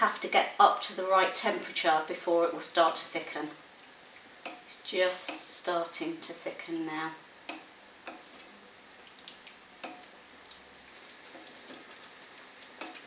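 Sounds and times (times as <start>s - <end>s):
sauce sizzling and bubbling in a pan: 0.2s - 13.0s
utensil clicking against pan: 4.1s - 5.5s, 7.5s - 8.5s, 9.1s - 10.6s, 11.3s - 13.0s.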